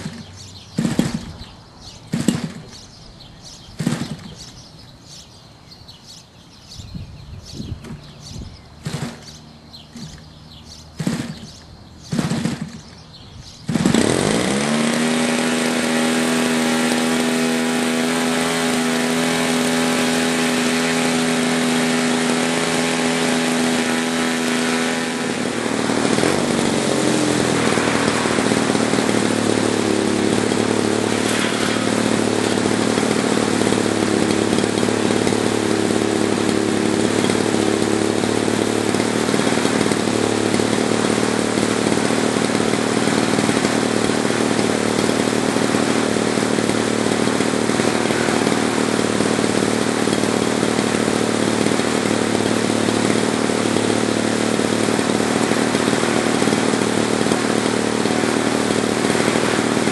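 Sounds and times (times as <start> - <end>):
engine pops: 0.0 - 2.9, 3.7 - 4.7, 8.8 - 14.2
two-stroke model engine running: 0.0 - 5.3, 7.8 - 59.9.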